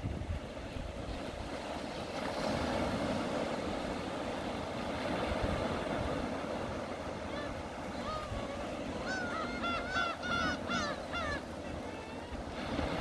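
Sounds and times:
small waves breaking on beach: 0.0s - 13.0s.

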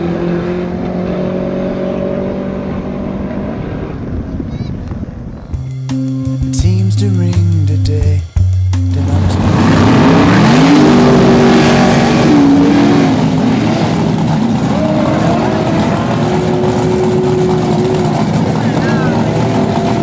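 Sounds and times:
engine revving hard: 0.0s - 4.2s, 8.9s - 20.0s
spinning tyre roar: 0.0s - 5.6s, 9.0s - 20.0s.

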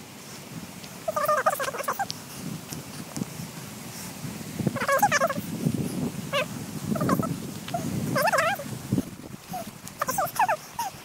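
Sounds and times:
stuttering animal call: 1.1s - 2.1s, 4.7s - 5.5s, 6.3s - 8.7s, 9.5s - 11.0s
footsteps on dirt trail: 6.9s - 10.8s.

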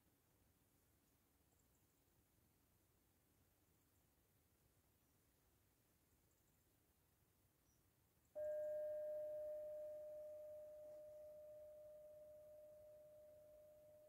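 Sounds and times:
metal singing bowl ringing: 8.4s - 14.0s.

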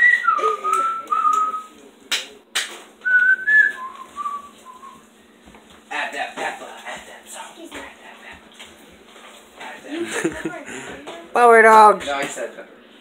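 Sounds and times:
person whistling: 0.0s - 1.7s, 3.0s - 5.0s.

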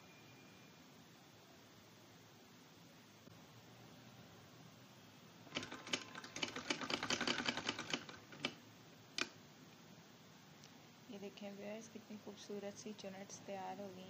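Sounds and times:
sewing machine stitching: 5.5s - 8.6s.

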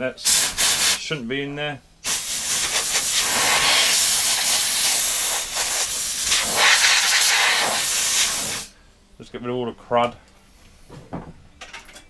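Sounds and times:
compressed air blow gun hissing: 0.2s - 1.0s, 2.0s - 8.8s.

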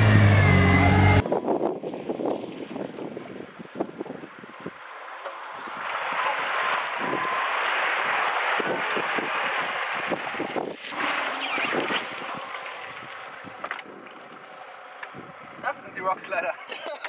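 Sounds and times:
car engine pulling under load: 0.0s - 1.2s
tyres splashing through mud and water: 1.8s - 17.0s.

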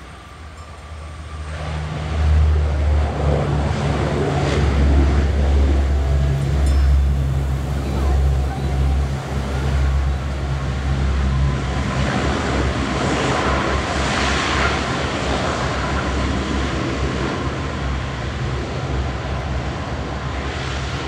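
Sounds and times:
steady deep hum: 0.0s - 14.4s
turboprop aircraft engines: 0.0s - 21.0s.

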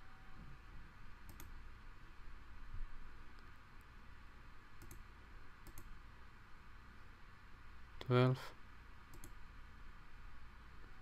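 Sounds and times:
faint steady hiss: 0.0s - 11.0s
computer mouse clicks: 1.2s - 1.6s, 4.8s - 6.0s, 9.1s - 9.4s.

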